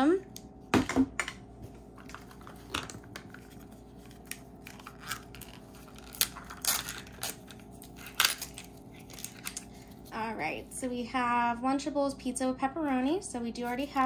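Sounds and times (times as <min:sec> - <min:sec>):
plastic scraping and peeling: 0:02.0 - 0:09.6.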